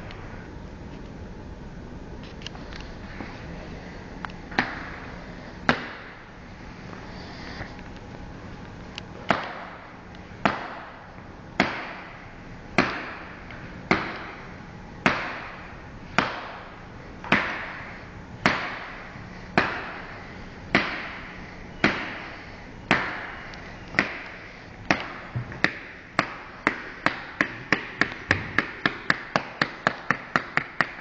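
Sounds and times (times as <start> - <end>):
hands clapping with echo: 24.9 - 31.0.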